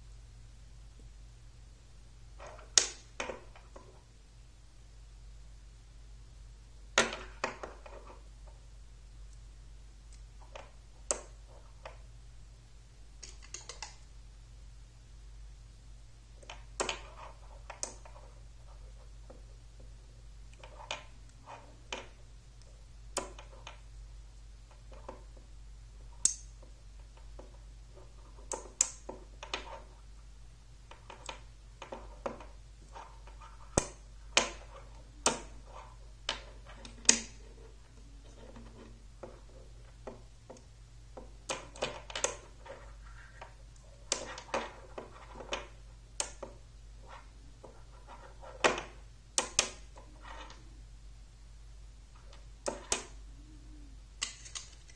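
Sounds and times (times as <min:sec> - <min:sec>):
faint steady hum: 0:00.0 - 0:54.9
magnetic rods and balls clicking: 0:13.2 - 0:14.1, 0:16.3 - 0:30.1, 0:30.8 - 0:50.7, 0:52.1 - 0:53.2.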